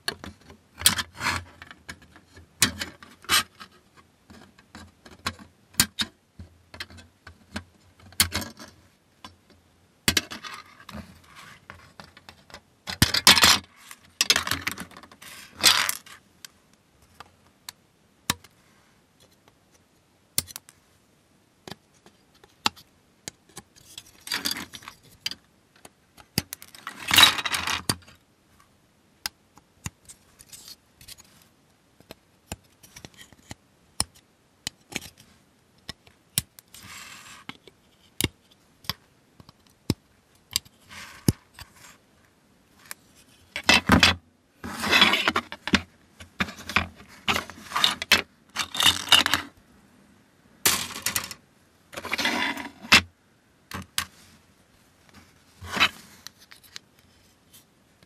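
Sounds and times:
plastic parts rattling and scraping: 0.1 - 6.1, 10.1 - 16.2, 23.5 - 28.2, 30.0 - 31.4, 42.8 - 49.6, 50.7 - 53.1, 55.2 - 56.9.

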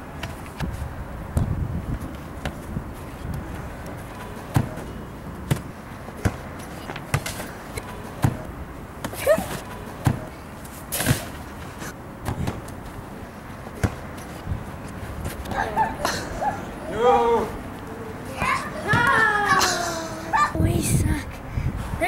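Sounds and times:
ball kicked on artificial turf: 12.2 - 12.8, 13.8 - 14.2.

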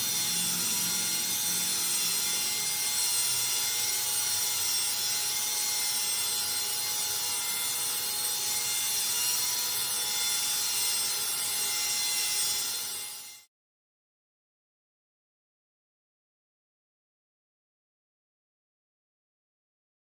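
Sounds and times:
electric drill motor whine: 0.0 - 13.5.

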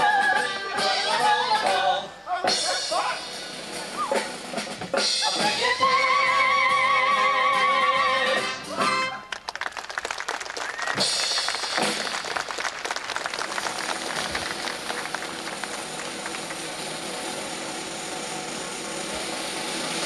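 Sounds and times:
audience applause: 9.3 - 17.8
whistle from audience: 10.6 - 11.2.

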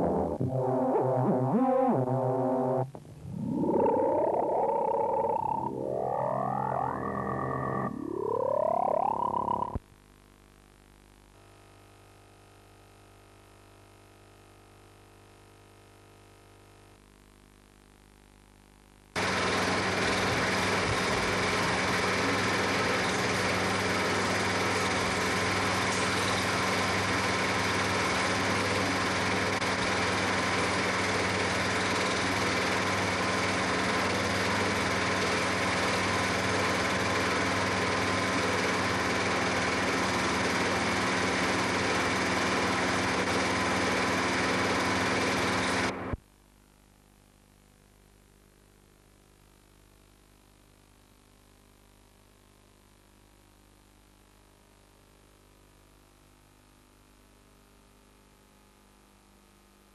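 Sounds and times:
film projector whirring: 19.2 - 46.2.

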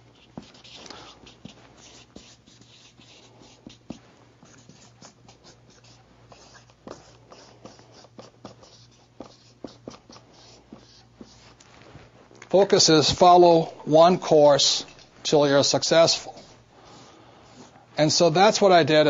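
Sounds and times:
marker squeaking on paper: 0.0 - 11.6.

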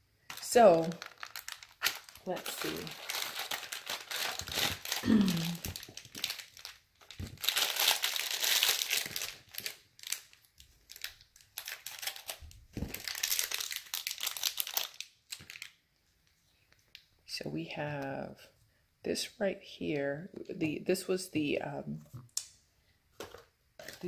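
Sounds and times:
plastic packaging crinkling: 0.2 - 15.8, 23.2 - 24.0.

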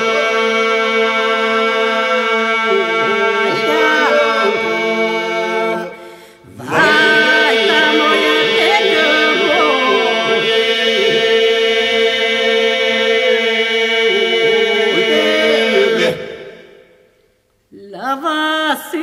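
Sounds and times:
lead voice singing melody: 0.0 - 5.8, 6.5 - 11.5
voices holding a drone: 6.6 - 10.1.

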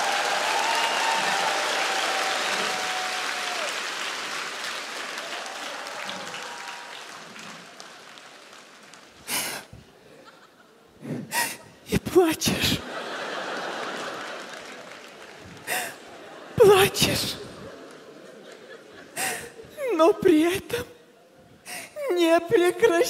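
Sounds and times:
audience applauding: 0.0 - 9.7, 12.9 - 16.8, 17.6 - 18.9.

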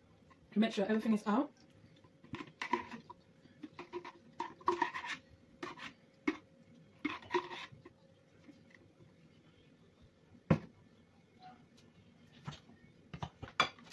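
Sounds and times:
spatula scraping inside glass jar: 2.3 - 3.1, 3.7 - 6.4, 7.0 - 7.8.

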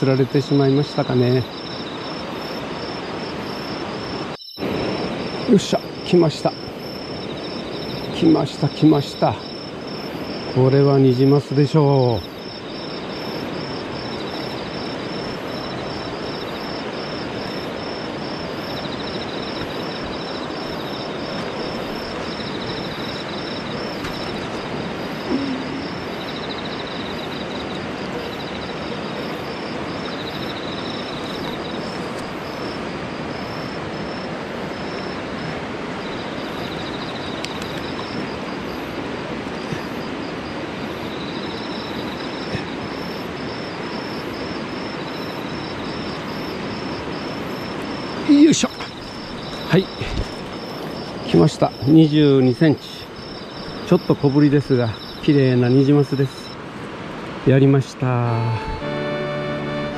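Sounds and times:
stream rapids rushing: 2.0 - 10.8, 54.7 - 59.9.

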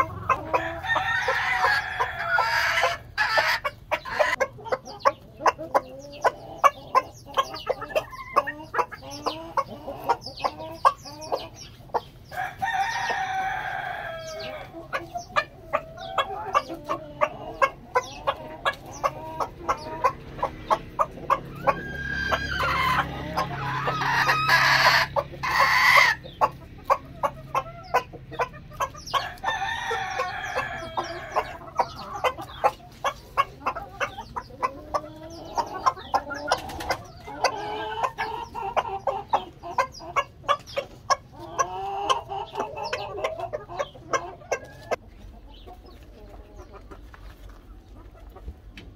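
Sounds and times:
chickens clucking: 0.0 - 48.9
drawn-out chicken calls: 0.0 - 48.9
chickens pecking clicks: 32.4 - 37.6.

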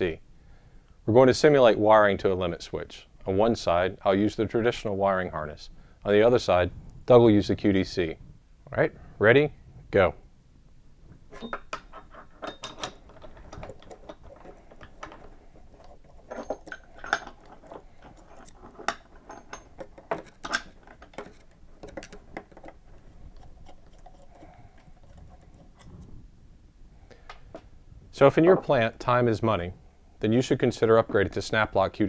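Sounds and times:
wires rustling: 11.0 - 26.5
metal housings clicking and rattling: 11.3 - 25.8
cable connector being threaded: 11.8 - 26.1.

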